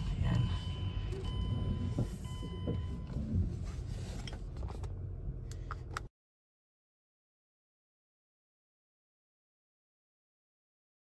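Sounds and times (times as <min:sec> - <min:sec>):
engine and road rumble: 0:00.0 - 0:06.1.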